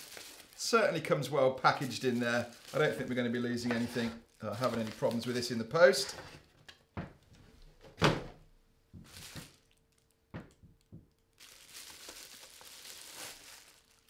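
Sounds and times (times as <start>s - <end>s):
bubble wrap crinkling: 0.0s - 6.0s, 9.0s - 14.0s.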